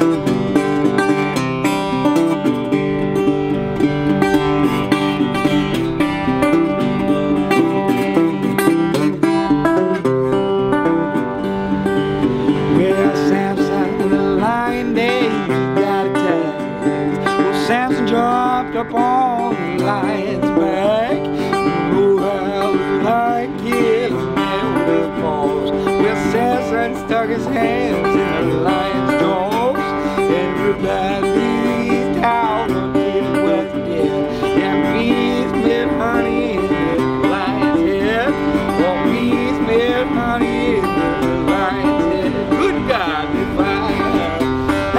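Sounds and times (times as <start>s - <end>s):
fingerpicked resonator guitar blues: 0.0s - 44.9s.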